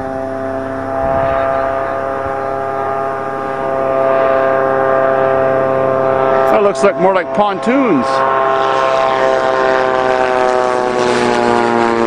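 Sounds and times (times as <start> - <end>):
light aircraft engine droning: 0.0 - 12.0.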